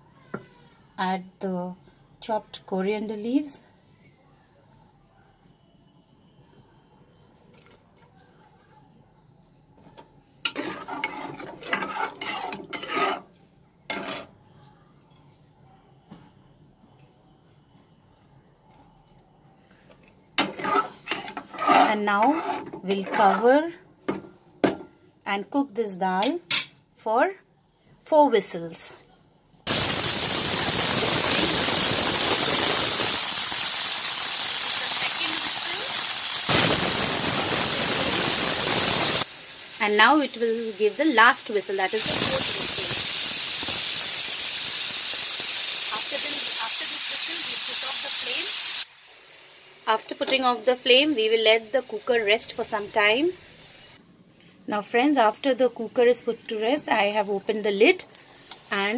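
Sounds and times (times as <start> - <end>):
metal spatula scraping pot: 10.4 - 14.4, 20.4 - 23.7
pressure cooker whistle hiss: 29.7 - 48.9.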